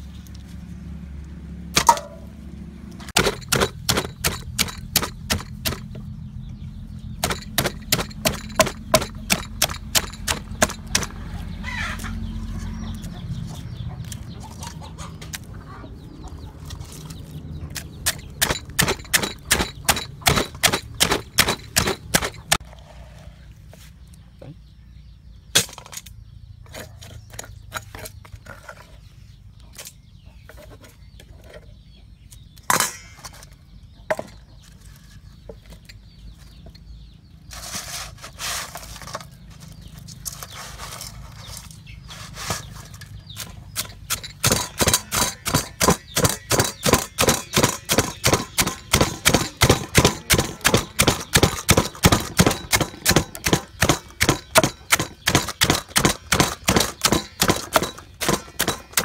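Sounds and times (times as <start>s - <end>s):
pestle pounding in wooden mortar: 3.1s - 6.0s, 7.2s - 11.2s, 17.7s - 22.6s, 43.4s - 59.0s
crab shells and spoon clattering: 7.2s - 11.2s, 17.8s - 22.6s.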